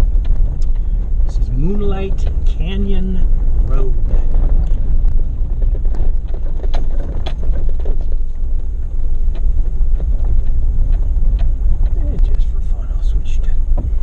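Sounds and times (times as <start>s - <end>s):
engine and tyres rumbling: 0.0s - 14.0s
clicks and rattles: 3.7s - 12.4s.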